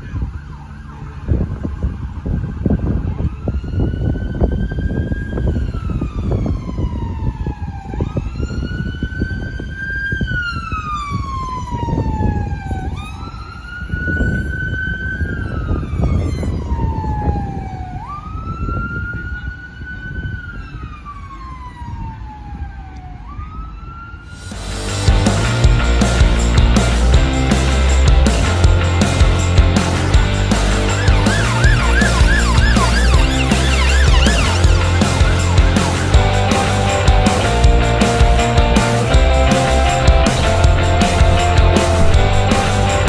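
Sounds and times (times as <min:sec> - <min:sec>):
traffic rumble: 0:00.0 - 0:08.3, 0:24.3 - 0:43.0
fire engine siren wailing: 0:00.0 - 0:25.1, 0:28.4 - 0:43.0
loud rock music: 0:24.4 - 0:43.0.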